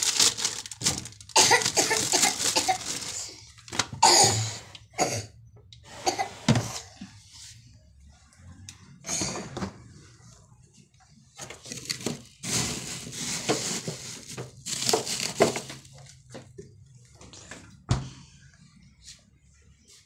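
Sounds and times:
rustling and crinkling: 0.0 - 4.0, 10.2 - 17.8.

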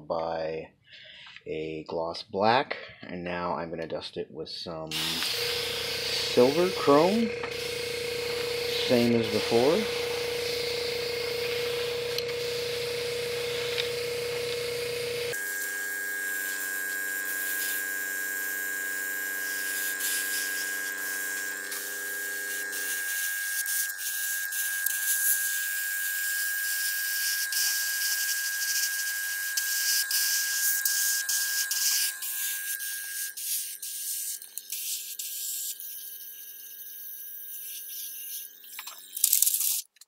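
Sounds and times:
steady hum: 4.9 - 33.5
airbrush hissing: 4.9 - 39.9.

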